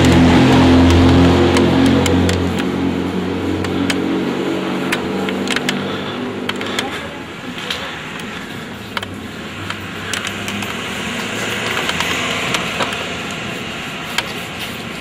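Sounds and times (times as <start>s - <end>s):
generator engine drone: 0.0s - 15.0s
small clicks and rattles: 4.8s - 15.0s.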